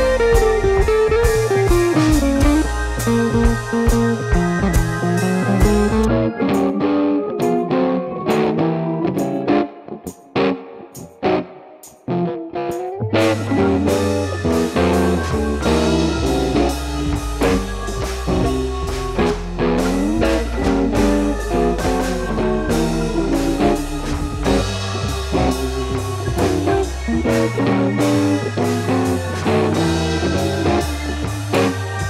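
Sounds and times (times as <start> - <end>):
blues-rock music: 0.0 - 32.0.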